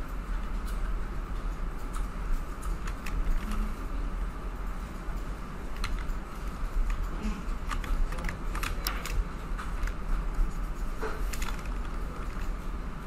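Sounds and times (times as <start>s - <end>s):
steady low hum: 0.0s - 13.0s
keyboard and mouse clicks: 1.8s - 3.8s, 5.6s - 12.6s.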